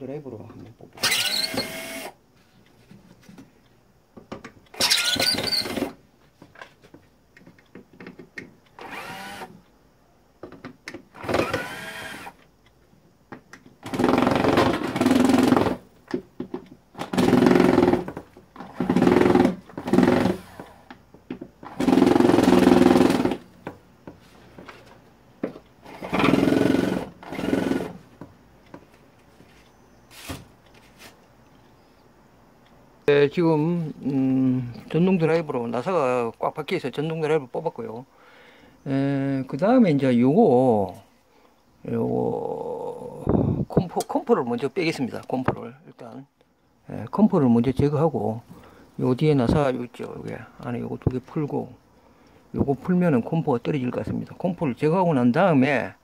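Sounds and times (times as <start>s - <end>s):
electric screwdriver whirring: 1.0s - 2.2s, 8.8s - 9.5s, 11.2s - 12.4s.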